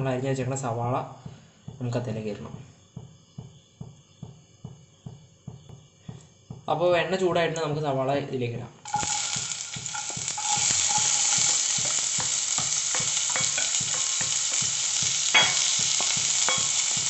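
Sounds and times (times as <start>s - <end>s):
onions sizzling in oil: 8.8s - 17.0s
utensils clicking against pan: 8.9s - 17.0s
sharp knock on pan: 9.4s - 17.0s.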